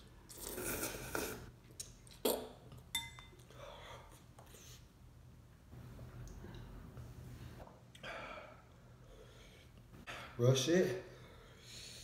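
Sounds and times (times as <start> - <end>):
noodles slurped: 0.3 - 1.5
metal fork clinking on glass bowl: 2.9 - 3.4.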